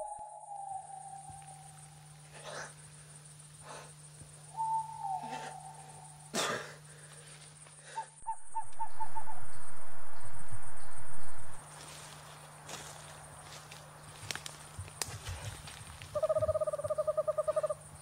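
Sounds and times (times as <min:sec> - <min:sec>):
owl hooting: 0:00.0 - 0:02.0, 0:04.5 - 0:06.3, 0:08.0 - 0:09.8, 0:16.1 - 0:17.9
faint forest ambience: 0:00.0 - 0:18.0.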